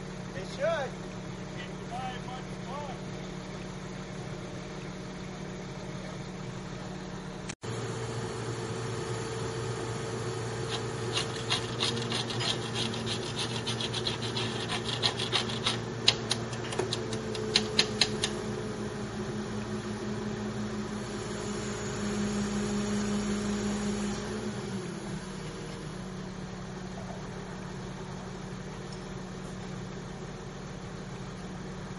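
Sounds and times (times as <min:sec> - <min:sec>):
engine idling hum: 0:00.0 - 0:31.9
hand tool clicking: 0:15.0 - 0:18.4.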